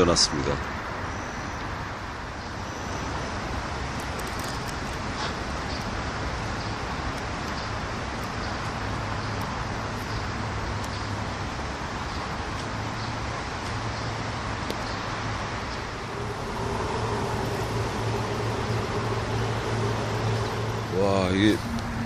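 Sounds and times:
traffic rumble: 0.0s - 22.0s
low hum from bridges: 1.8s - 22.0s
train crossing bridge: 15.4s - 22.0s.

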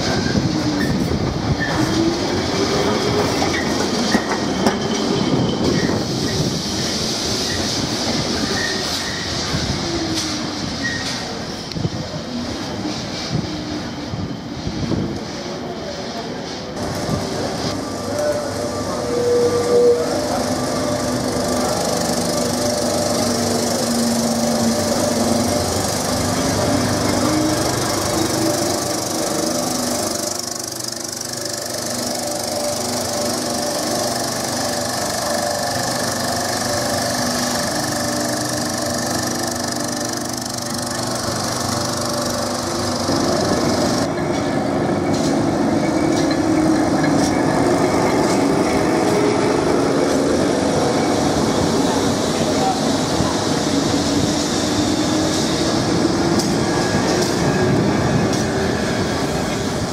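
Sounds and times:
tram motor whine: 0.0s - 16.0s, 16.7s - 59.9s
rattling rumble of tram: 0.0s - 59.9s
wheel squeal: 8.3s - 9.6s, 10.2s - 11.4s.

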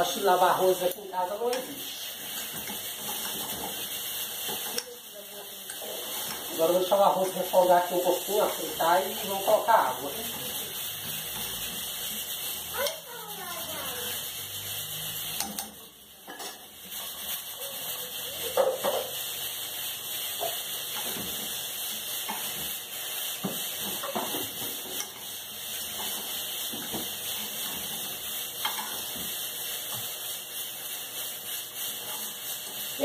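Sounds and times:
rice sizzling in oil: 0.0s - 33.0s
spoon scraping and knocking pot: 1.5s - 4.9s, 15.3s - 17.2s, 18.5s - 19.2s, 20.4s - 21.5s, 23.4s - 25.3s, 25.9s - 30.1s.

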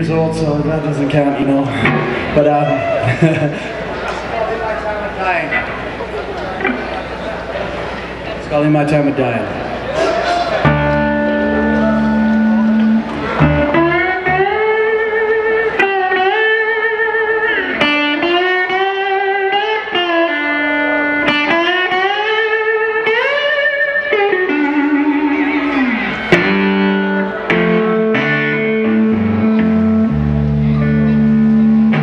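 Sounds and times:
slide guitar blues: 0.0s - 3.1s, 10.1s - 32.0s.

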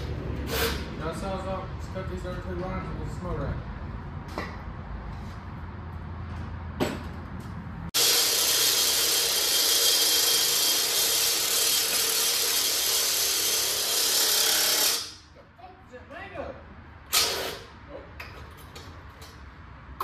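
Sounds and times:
power tool cutting with hissing whir: 8.0s - 15.2s.

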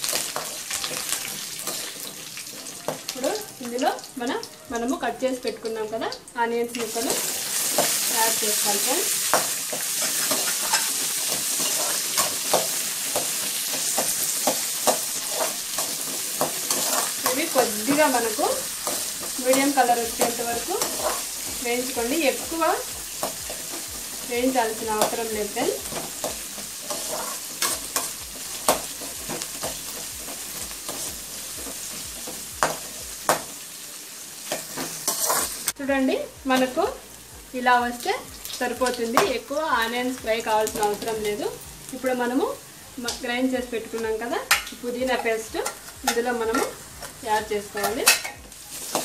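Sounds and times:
onions sizzling in oil: 0.0s - 49.0s
metal ladle scraping pan: 9.3s - 24.2s, 34.5s - 35.7s
spatula clacking against pan: 25.9s - 33.5s.

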